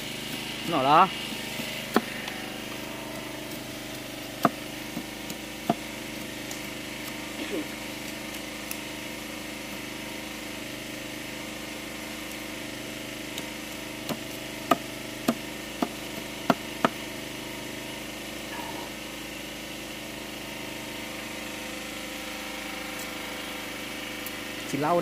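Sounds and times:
steady hum: 0:00.0 - 0:25.0
knife chopping on wooden board: 0:01.6 - 0:02.8, 0:03.5 - 0:07.3, 0:13.3 - 0:17.0.

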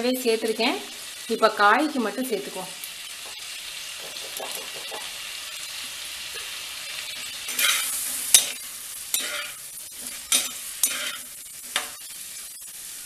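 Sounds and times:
eggplant sizzling in oil: 0:00.0 - 0:13.0
metal spatula scraping: 0:06.4 - 0:13.0.

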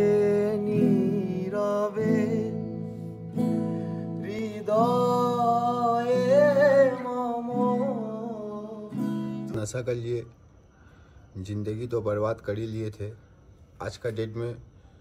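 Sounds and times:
person singing: 0:00.0 - 0:09.5
acoustic guitar chords: 0:00.0 - 0:09.9.

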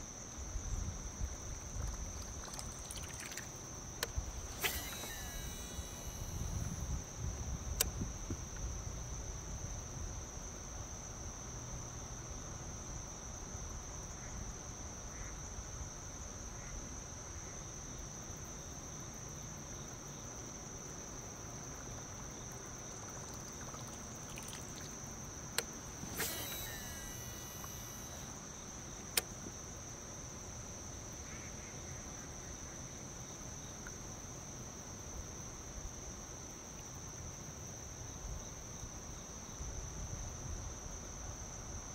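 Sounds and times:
high-pitched insect drone: 0:01.8 - 0:08.2, 0:21.8 - 0:29.1
sharp clicks: 0:01.9 - 0:06.7, 0:25.6 - 0:28.3.

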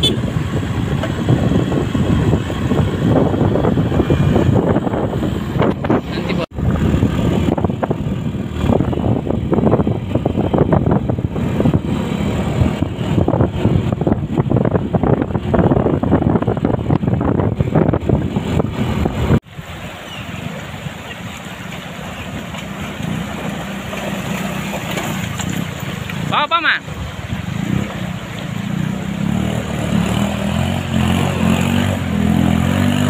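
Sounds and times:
wind buffeting microphone: 0:00.0 - 0:33.0
river flowing over rocks: 0:19.5 - 0:29.7.

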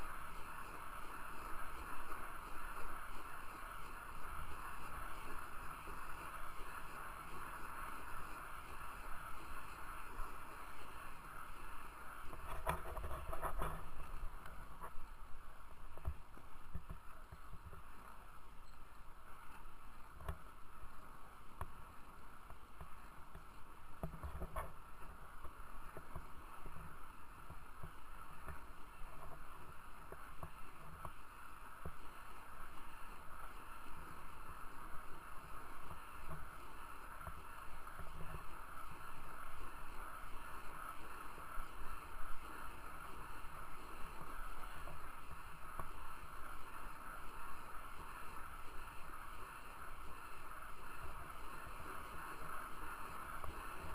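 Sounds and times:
skate wheels rolling on asphalt: 0:00.0 - 0:53.9.

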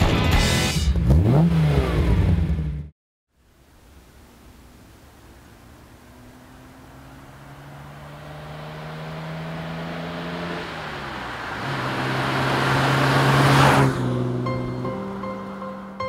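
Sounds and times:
car engine and exhaust approaching: 0:04.1 - 0:16.0.

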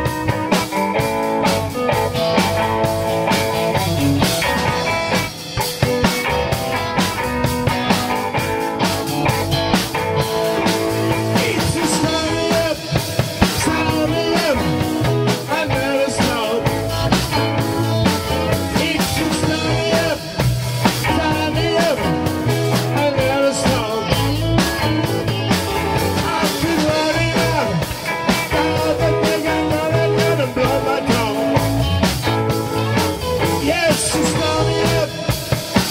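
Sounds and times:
rock band playing: 0:00.0 - 0:35.9
steady drum beat: 0:00.0 - 0:35.9
person singing: 0:10.6 - 0:35.9.

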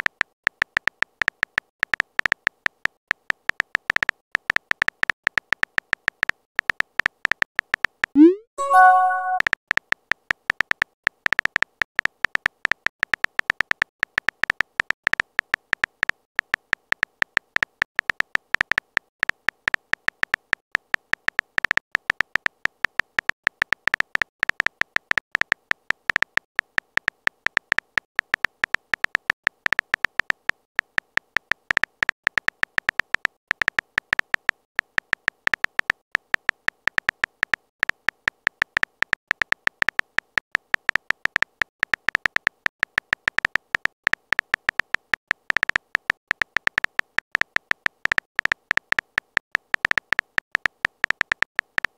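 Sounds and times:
phone keyboard typing clicks: 0:03.2 - 0:09.4, 0:25.4 - 0:51.9
rising message sent chime: 0:08.2 - 0:09.4.

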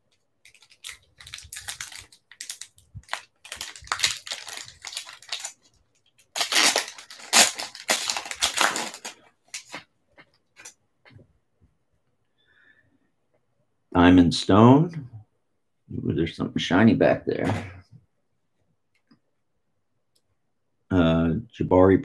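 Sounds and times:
wrapper crinkling and tearing: 0:00.4 - 0:09.8.

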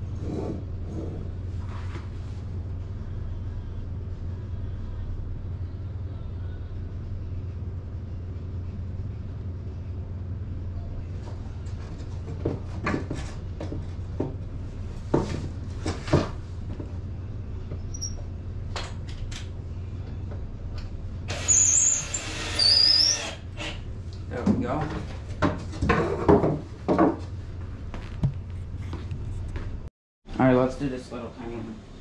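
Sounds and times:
steady low hum: 0:00.0 - 0:21.5, 0:23.3 - 0:32.0
scrapes with high squeal: 0:21.3 - 0:23.8.

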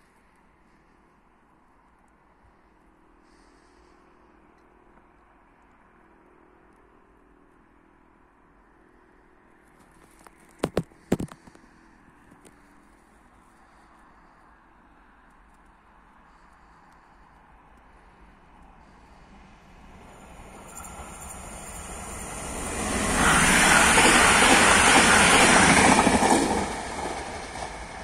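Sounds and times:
train passing rumble: 0:10.8 - 0:28.0.

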